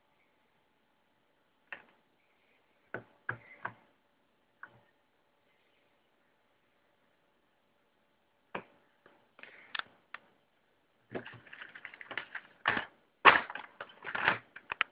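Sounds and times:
plastic bags crinkling: 11.1s - 14.4s
plastic parts clicking: 11.1s - 14.9s.

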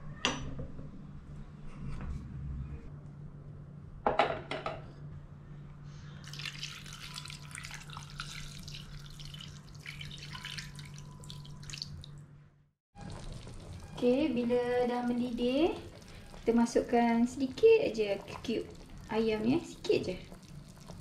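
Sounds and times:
steady low hum: 0.8s - 4.1s
water pouring into a saucepan: 6.2s - 12.1s, 13.0s - 14.1s, 14.8s - 16.9s.

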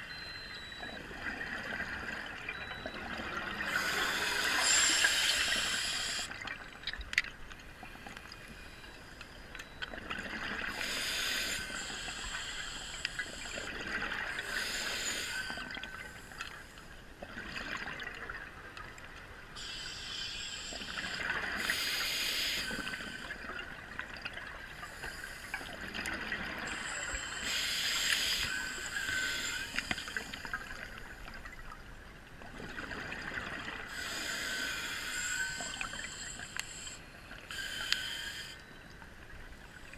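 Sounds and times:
scuba regulator hiss: 3.7s - 6.3s, 10.7s - 13.6s, 14.4s - 15.6s, 21.6s - 23.3s, 27.3s - 30.3s, 33.9s - 38.6s.

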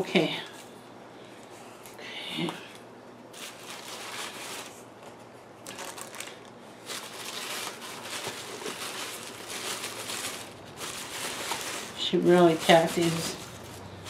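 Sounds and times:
paper and plastic rustling: 3.3s - 14.0s.

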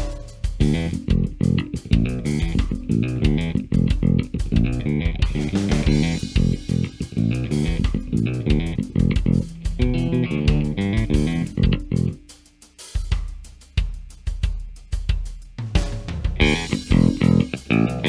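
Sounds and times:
electric bass played fingerstyle: 0.0s - 12.3s, 16.4s - 18.0s
drums: 0.0s - 18.0s.

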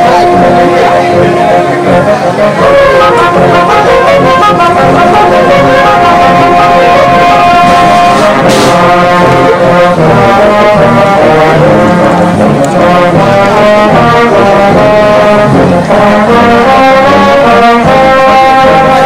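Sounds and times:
brass music: 0.0s - 19.0s.

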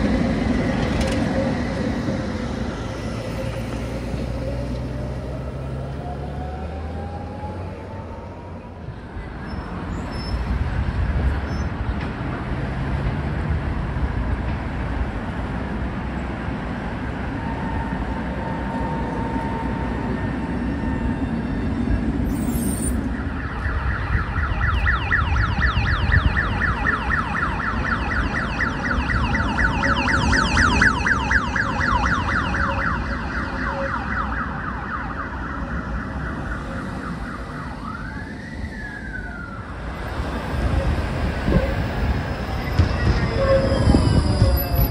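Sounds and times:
tram rumbling on track: 0.0s - 44.9s
high pulsing wheel squeal: 17.4s - 23.2s, 40.6s - 44.9s.

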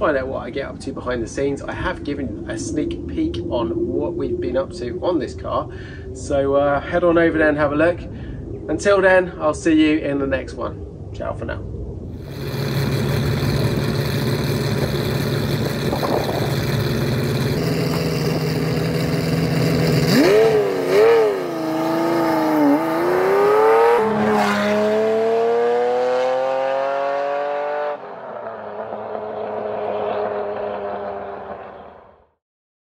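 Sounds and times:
car engine idling and revving: 12.2s - 32.1s.

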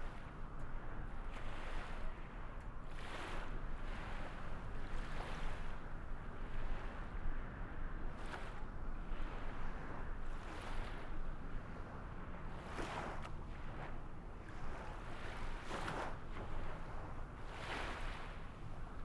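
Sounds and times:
waves washing: 12.6s - 19.0s.

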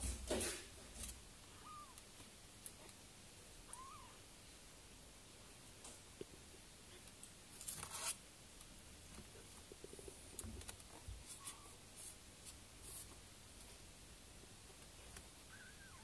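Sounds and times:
scratchy rustling and scraping: 7.5s - 8.2s, 9.2s - 13.9s.

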